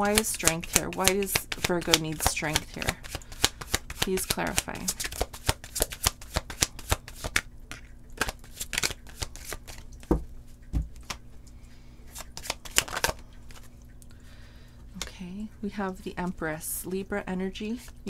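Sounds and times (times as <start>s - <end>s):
cards being shuffled: 0.0s - 10.2s, 10.8s - 11.2s, 12.1s - 13.7s.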